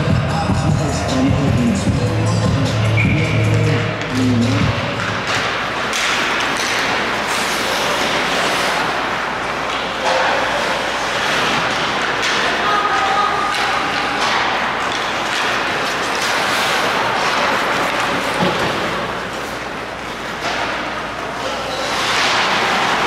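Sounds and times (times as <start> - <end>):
music over arena speakers: 0.0 - 5.0
skates scraping ice: 3.1 - 23.0
sticks and puck knocking: 3.4 - 10.5, 11.2 - 18.9
echoing rink hiss: 5.3 - 20.4.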